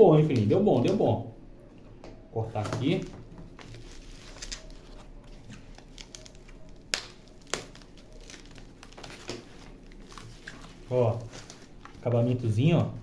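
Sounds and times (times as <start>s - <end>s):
foam rustling and tearing: 3.6s - 13.0s.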